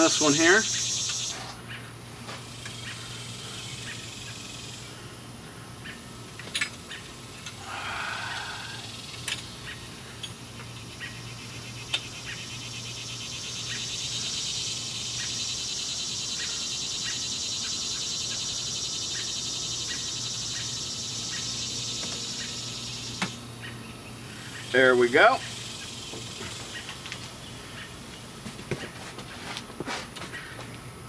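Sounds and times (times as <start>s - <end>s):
high buzzing hiss: 0.0s - 5.1s, 6.2s - 23.6s
steady low hum: 0.0s - 31.0s.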